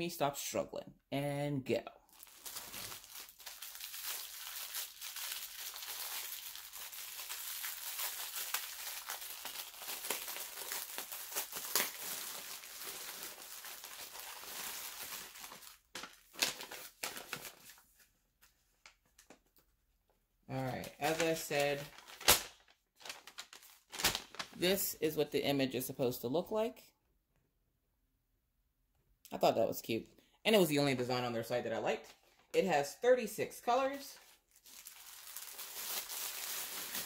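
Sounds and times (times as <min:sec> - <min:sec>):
plastic wrap crinkling: 0:02.1 - 0:18.0, 0:20.6 - 0:25.0, 0:34.2 - 0:37.0.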